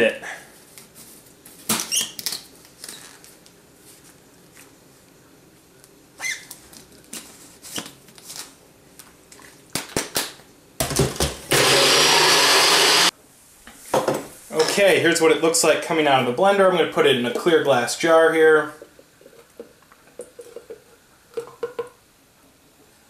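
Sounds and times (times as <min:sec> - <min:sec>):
blender whirring: 0:11.5 - 0:13.1.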